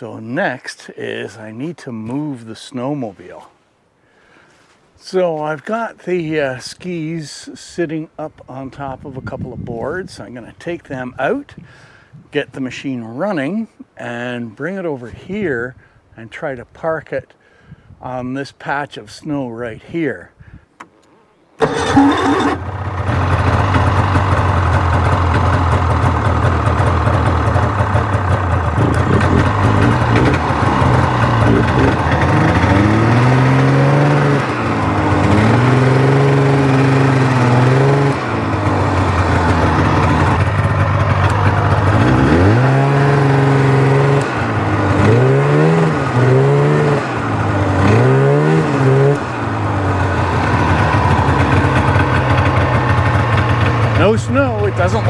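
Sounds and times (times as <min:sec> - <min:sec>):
snowmobile engine revving: 0:21.6 - 0:55.0.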